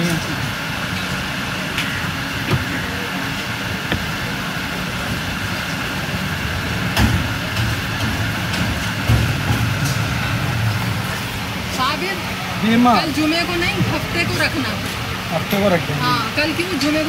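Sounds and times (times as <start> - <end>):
steady background hum: 0.0 - 17.0
knife knocking on chopping block: 3.9 - 4.1.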